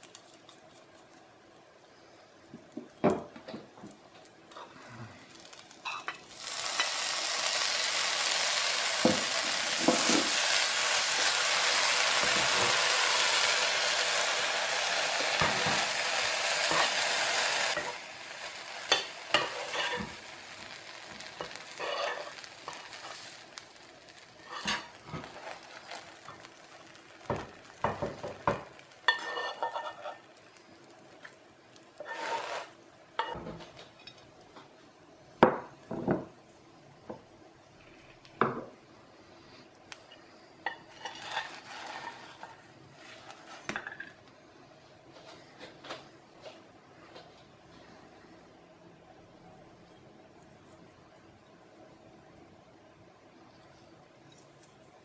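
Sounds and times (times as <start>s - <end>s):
peppers sizzling in hot oil: 0.0s - 34.5s, 39.2s - 44.2s
metal spoon scraping pan: 18.9s - 20.2s, 21.4s - 23.0s, 24.4s - 26.0s, 29.1s - 30.3s, 32.0s - 33.4s, 40.8s - 43.6s.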